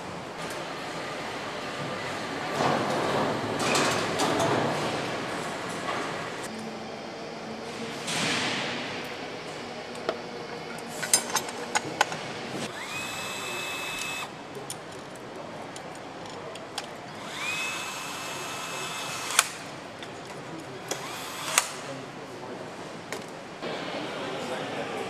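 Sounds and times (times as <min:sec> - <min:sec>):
power driver whining: 0:12.7 - 0:14.3, 0:17.2 - 0:19.5.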